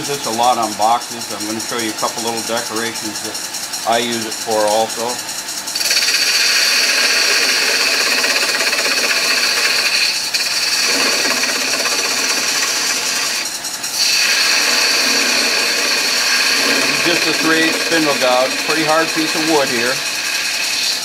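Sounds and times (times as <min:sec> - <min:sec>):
lathe gouge scraping wood: 0:05.8 - 0:21.0.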